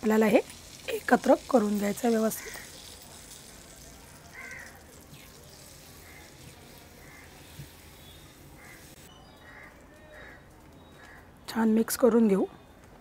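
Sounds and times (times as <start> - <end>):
ghee sizzling faintly: 0.0 - 9.6.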